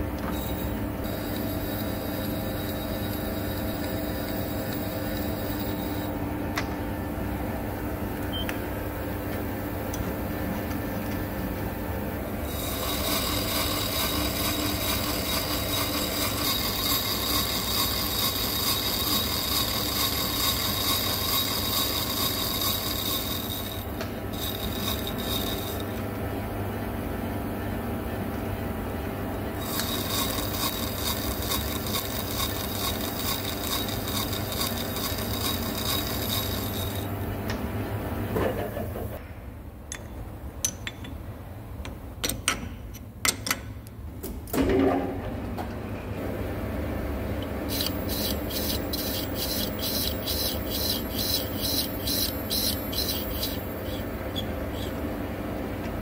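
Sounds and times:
metal lathe humming: 0:00.2 - 0:06.3, 0:12.2 - 0:26.2, 0:29.6 - 0:37.3, 0:47.4 - 0:55.1
high-pitched cutting squeal: 0:12.5 - 0:25.9, 0:29.6 - 0:37.1, 0:47.7 - 0:55.0.

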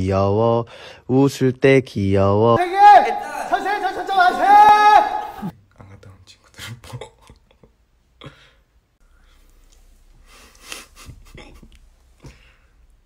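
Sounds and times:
man laughing softly: 0:10.3 - 0:12.4.

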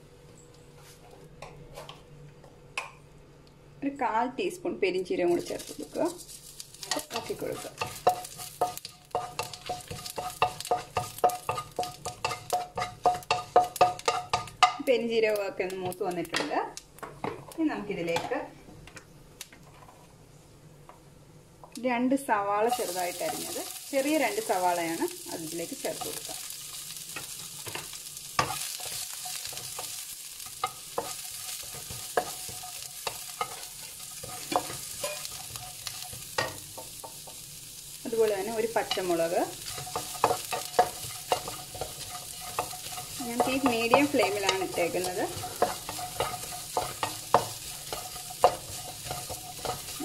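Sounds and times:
spices sizzling in oil: 0:04.0 - 0:18.5, 0:21.7 - 0:50.0
spatula striking a wok: 0:06.8 - 0:14.9, 0:27.1 - 0:37.4, 0:38.8 - 0:50.0.

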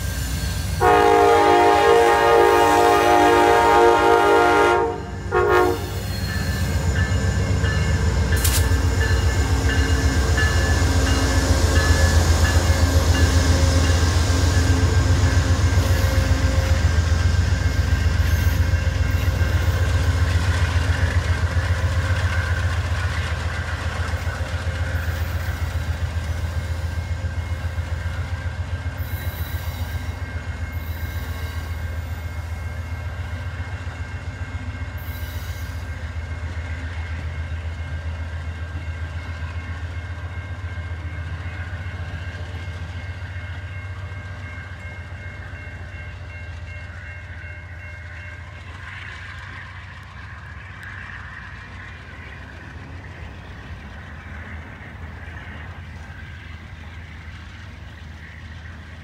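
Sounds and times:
train cars rumbling past: 0:00.0 - 0:59.0
train horn: 0:00.8 - 0:06.3, 0:11.8 - 0:20.0
wheels clacking over rail joints: 0:06.0 - 0:26.6.

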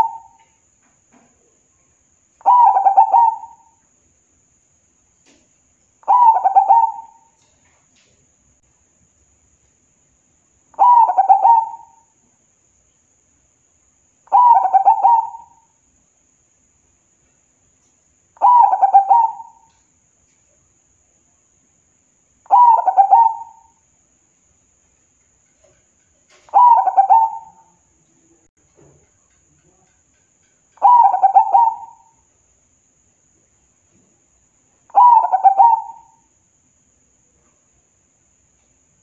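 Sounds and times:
dove cooing: 0:00.0 - 0:00.4, 0:02.4 - 0:03.7, 0:06.0 - 0:07.4, 0:10.8 - 0:12.0, 0:14.3 - 0:15.6, 0:18.4 - 0:19.7, 0:22.5 - 0:23.7, 0:26.3 - 0:27.8, 0:30.8 - 0:32.1, 0:34.9 - 0:36.2.

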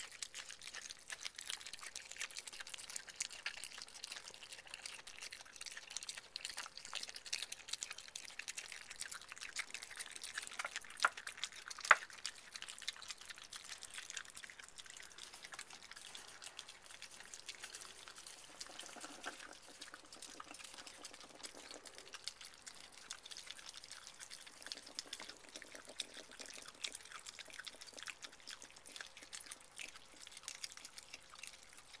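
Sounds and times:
animals chewing wet food: 0:00.0 - 0:32.0.

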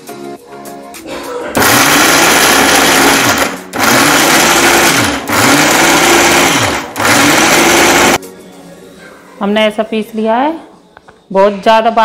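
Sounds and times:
mixer grinder running: 0:01.6 - 0:08.2.

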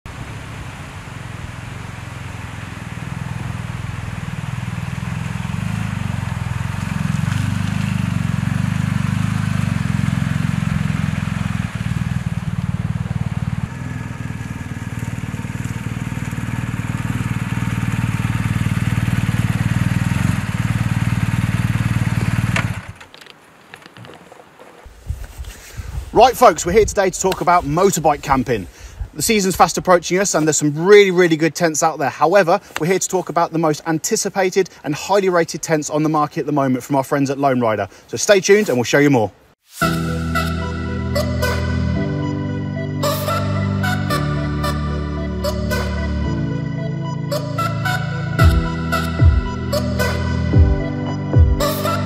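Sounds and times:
motorcycle engine running: 0:00.1 - 0:23.0, 0:48.4 - 0:51.8.

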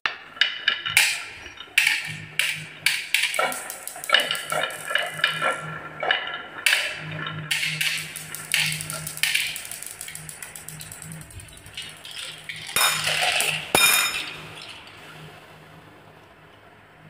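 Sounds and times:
marbles rattling down wooden track: 0:01.8 - 0:05.6, 0:07.5 - 0:14.6
container of marbles clinking: 0:03.2 - 0:05.5, 0:07.6 - 0:15.0.

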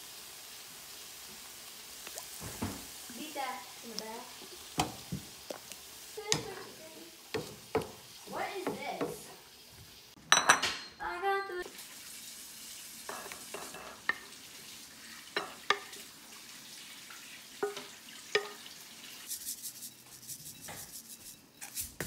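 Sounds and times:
spatula scraping frying pan: 0:13.0 - 0:14.3, 0:17.6 - 0:22.0.

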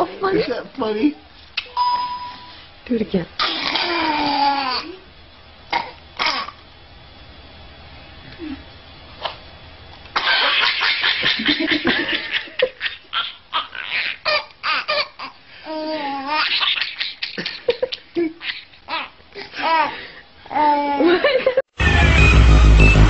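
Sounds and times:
baby laughing: 0:10.2 - 0:20.0.

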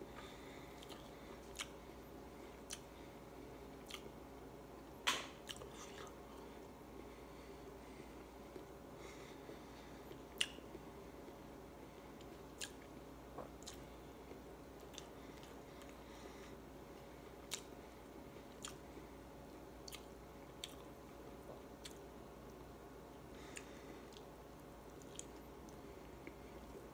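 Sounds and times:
faint steady hum: 0:00.0 - 0:26.9
person chewing with mouth smacks: 0:00.2 - 0:01.8, 0:02.5 - 0:02.9, 0:03.7 - 0:04.1, 0:05.4 - 0:06.3, 0:10.1 - 0:11.4, 0:12.2 - 0:16.0, 0:17.4 - 0:17.8, 0:18.4 - 0:18.8, 0:19.8 - 0:20.9, 0:21.5 - 0:22.6, 0:23.4 - 0:26.9.

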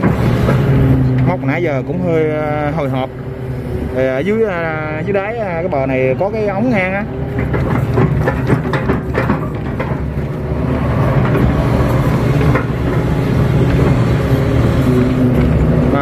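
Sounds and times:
excavator diesel engine running: 0:00.0 - 0:16.0
sharp knocks: 0:07.3 - 0:14.1.

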